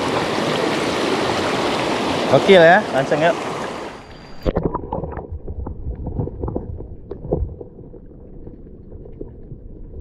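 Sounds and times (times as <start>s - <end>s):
muffled underwater river rumble: 4.3s - 10.0s.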